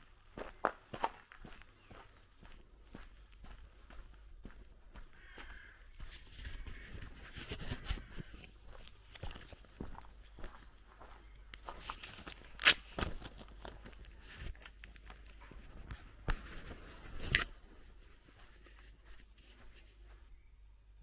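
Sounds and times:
footsteps on grass and twigs: 0:00.0 - 0:20.5
twigs crackling: 0:05.2 - 0:17.5.

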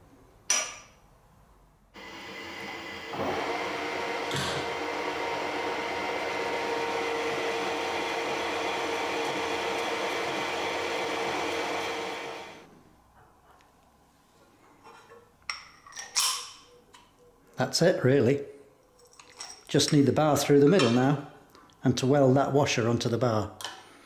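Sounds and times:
metal lathe whining: 0:02.0 - 0:12.7.

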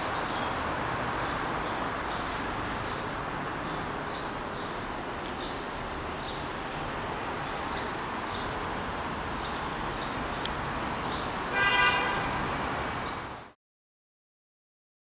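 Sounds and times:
street traffic noise: 0:00.0 - 0:13.6
car horn toot: 0:11.5 - 0:12.3.

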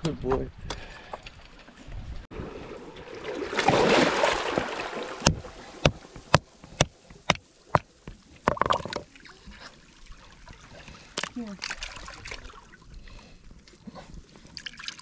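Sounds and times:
rock knocking on oyster shells: 0:05.2 - 0:09.0.

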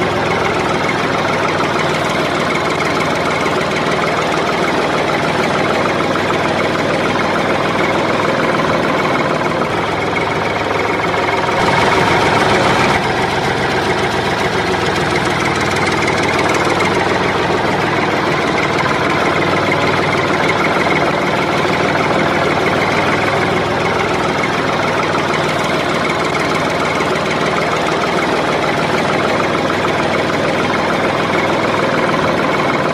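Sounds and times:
tractor engine running: 0:00.0 - 0:32.9.

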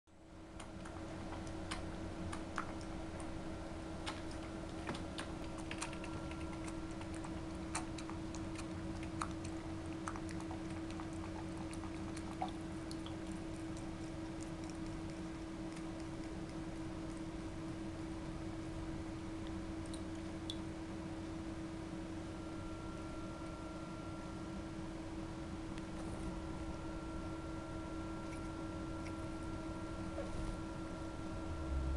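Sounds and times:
low hum: 0:00.2 - 0:31.9
cat lapping water: 0:00.5 - 0:20.7.

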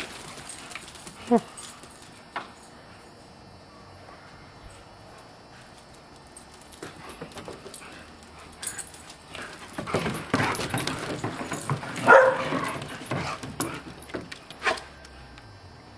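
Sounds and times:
dogs scuffling on deck boards: 0:09.3 - 0:14.8.

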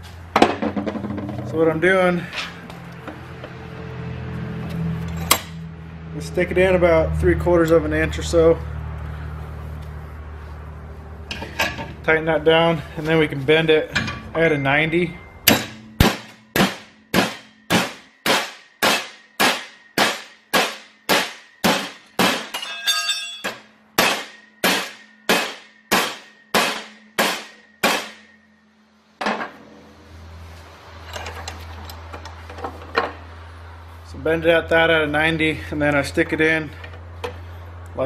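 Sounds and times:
sledgehammer striking steel rod: 0:15.2 - 0:28.4.

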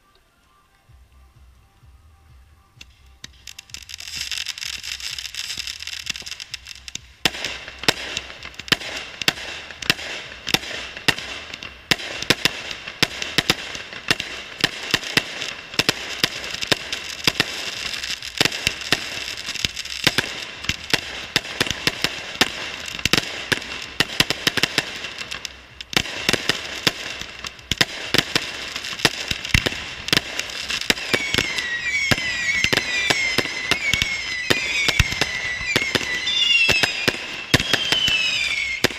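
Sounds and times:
fireworks bangs: 0:02.8 - 0:38.9
steady high whistling: 0:30.7 - 0:38.9
short wavering whistles: 0:31.0 - 0:38.8.

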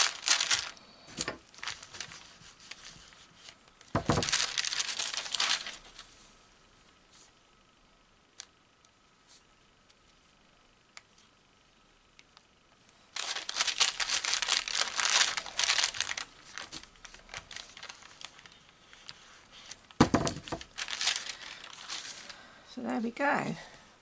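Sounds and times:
greaseproof paper crinkling: 0:00.0 - 0:06.2, 0:13.1 - 0:22.4.

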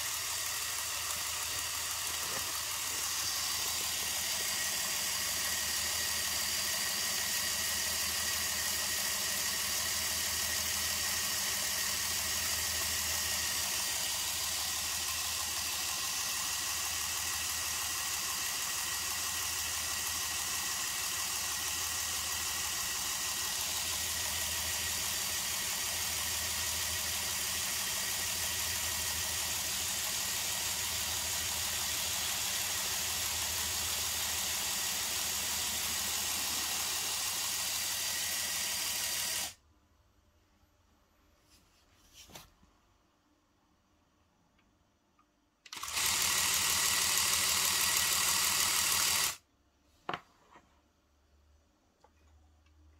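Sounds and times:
air compressor humming: 0:00.0 - 0:39.6.

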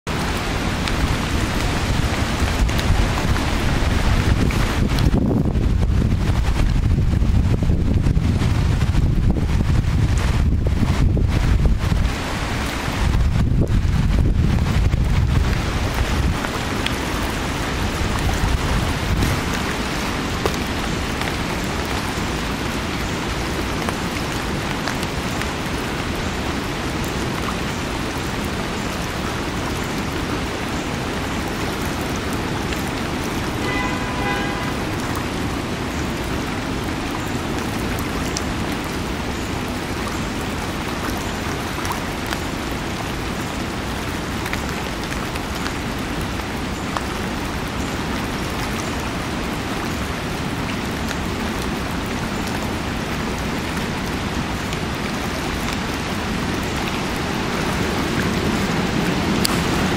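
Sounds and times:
creek water rushing: 0:00.1 - 0:59.9
wind buffeting microphone: 0:00.2 - 0:45.5.

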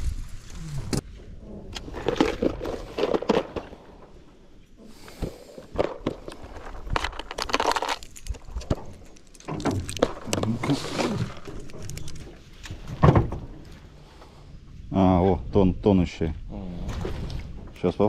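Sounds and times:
plastic lure box clicks and rattles: 0:05.8 - 0:10.5.

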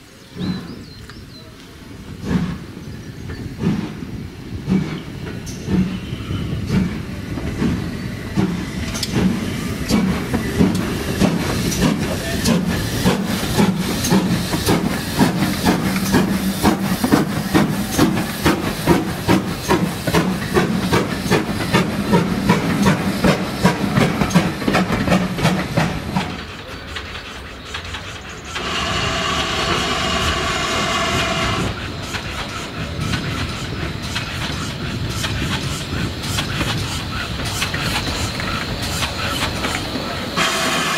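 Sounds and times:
steam hiss: 0:01.9 - 0:40.9
steam locomotive rhythmic beat: 0:03.6 - 0:40.9
steam whistle tones: 0:28.6 - 0:31.8, 0:40.4 - 0:40.9.

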